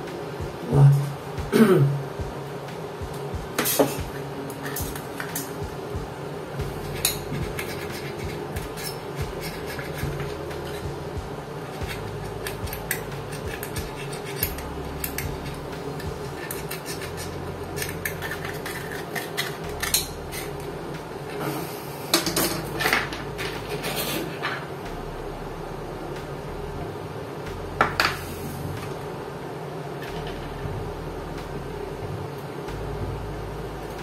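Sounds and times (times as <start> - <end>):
sandpaper scratching plastic: 6.9 - 10.9.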